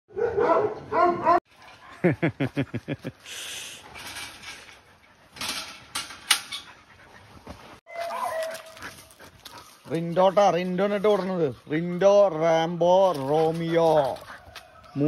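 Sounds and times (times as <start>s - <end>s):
dogs yelping: 0.1s - 2.1s, 6.4s - 10.1s
dog call: 7.9s - 9.2s.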